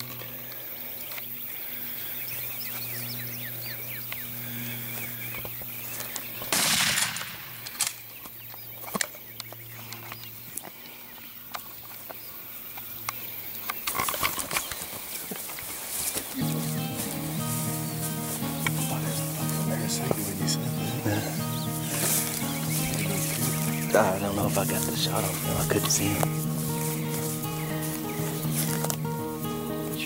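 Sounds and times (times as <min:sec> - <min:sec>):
steady low hum: 0:00.0 - 0:13.9, 0:16.2 - 0:30.0
birds chirping: 0:00.0 - 0:30.0
footsteps and gear rustling in grass: 0:00.0 - 0:30.0
rifle shot: 0:06.5 - 0:08.0.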